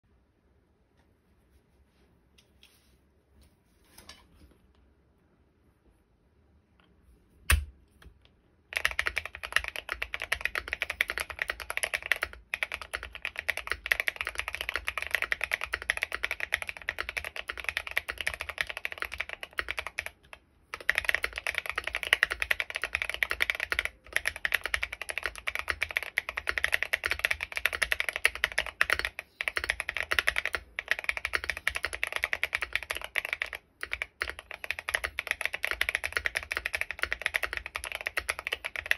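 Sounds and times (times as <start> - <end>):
typing on mechanical keyboard: 8.7 - 38.9.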